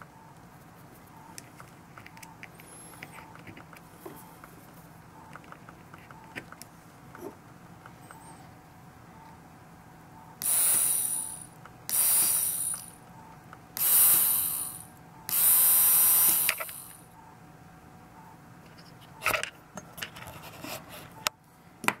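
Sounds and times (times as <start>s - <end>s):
small motor buzzing whine: 10.4s - 13.0s, 13.8s - 17.1s.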